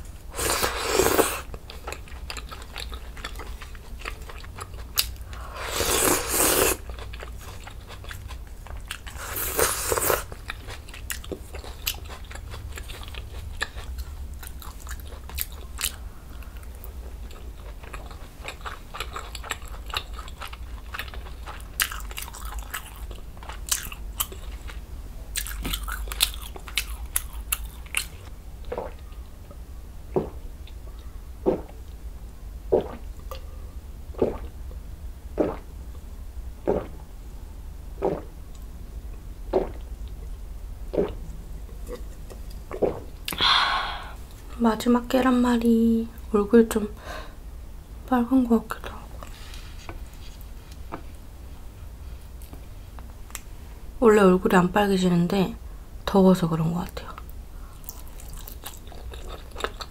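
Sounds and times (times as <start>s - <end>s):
gulps of swallowing: 36.6s - 37.0s
wet chewing mouth clicks: 36.6s - 37.0s.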